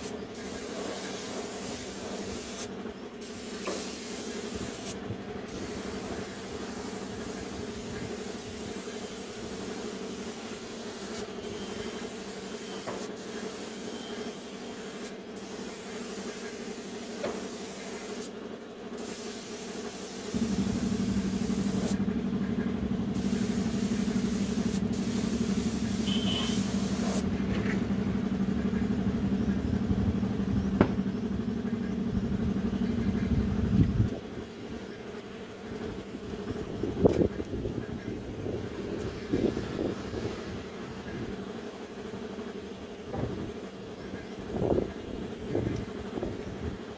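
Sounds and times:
spray gun hissing: 0.0 - 18.3, 18.9 - 22.0, 23.1 - 27.2
steady low hum: 15.2 - 46.9.

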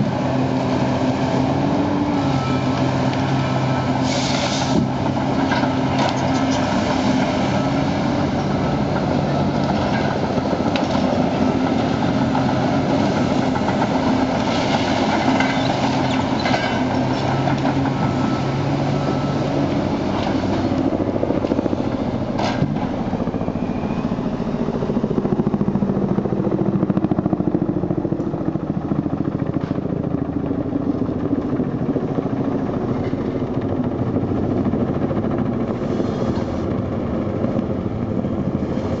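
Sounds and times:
diesel engine running: 0.0 - 39.0
helicopter rotor noise: 4.8 - 39.0.

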